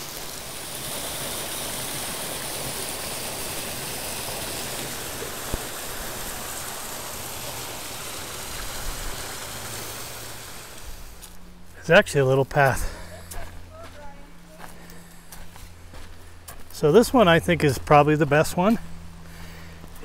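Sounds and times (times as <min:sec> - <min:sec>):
creek water rushing over rocks: 0:00.0 - 0:11.4.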